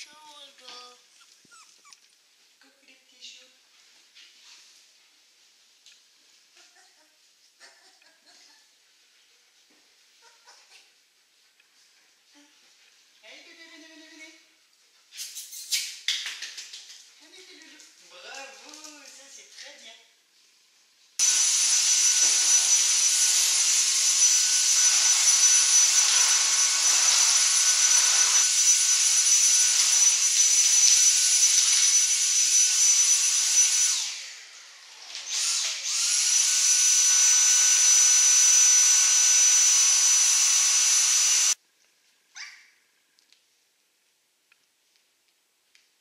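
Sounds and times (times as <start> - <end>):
vacuum cleaner whine: 21.2 - 41.6.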